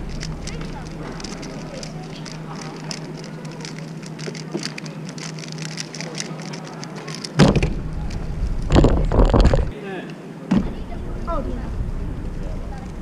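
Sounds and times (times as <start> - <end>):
puzzle cube clicking: 0.0 - 8.2.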